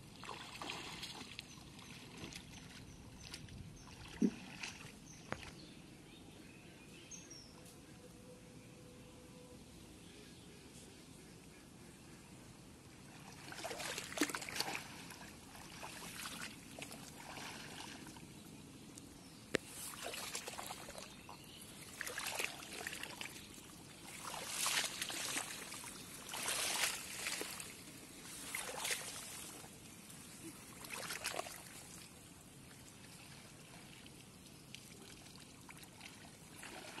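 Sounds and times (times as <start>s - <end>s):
water sloshing from wading: 0.0s - 5.6s, 13.1s - 37.0s.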